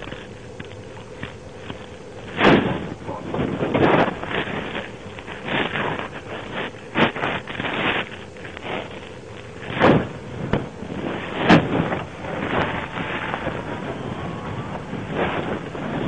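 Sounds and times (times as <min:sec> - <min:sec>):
rough rumbling noise: 0:00.0 - 0:16.0
muffled thumps: 0:09.6 - 0:16.0.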